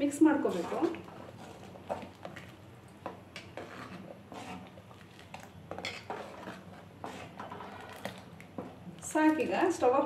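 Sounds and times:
metal ladle scraping pan: 0.3 - 2.4, 3.4 - 8.7.

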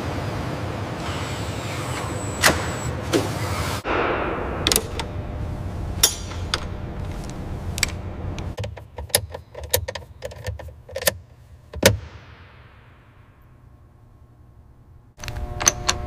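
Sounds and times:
low rumble: 3.8 - 8.6.

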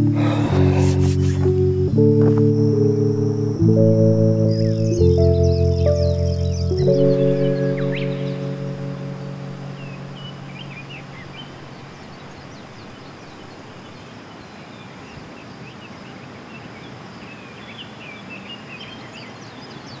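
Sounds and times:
small birds chirping: 0.0 - 20.0
steady outdoor hiss: 0.0 - 20.0
faint high tone: 6.7 - 11.8.

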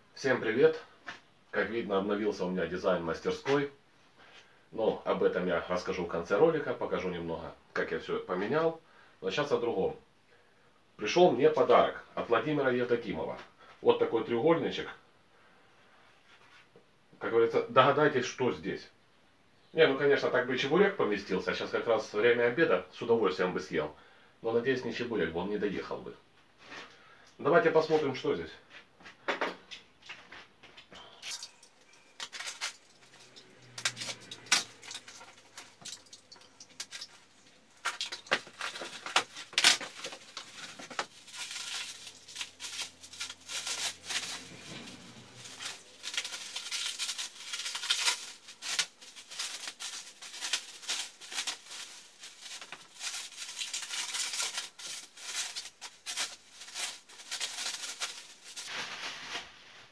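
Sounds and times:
plastic film crinkling: 31.1 - 59.9
cardboard parcel tearing: 31.3 - 59.9.

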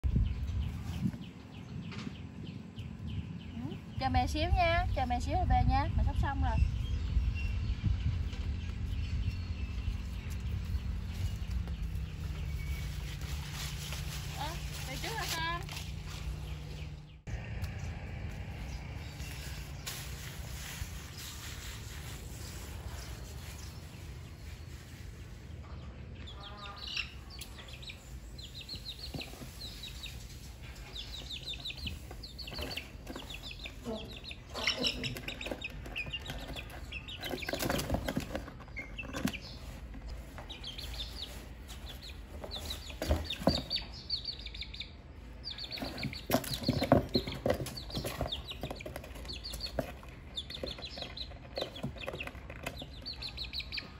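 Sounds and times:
chickens clucking and peeping: 6.8 - 53.9
vegetables rustling in cardboard box: 12.2 - 16.4.

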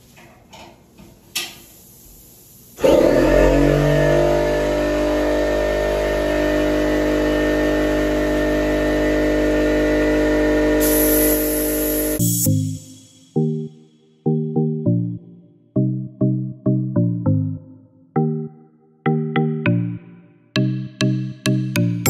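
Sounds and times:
spray gun hiss: 1.6 - 3.0, 10.2 - 13.4
air compressor running: 1.9 - 12.9.

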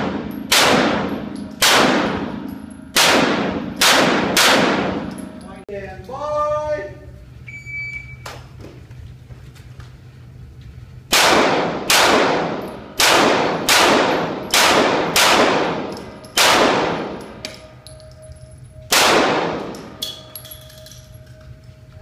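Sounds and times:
pistol shots echoing indoors: 0.0 - 5.3, 11.1 - 21.2.

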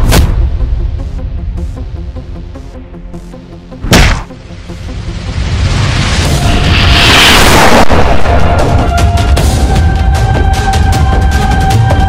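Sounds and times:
action music with pulsing beat: 0.0 - 6.7, 8.0 - 12.0
punch hit with whoosh: 3.8 - 4.3.

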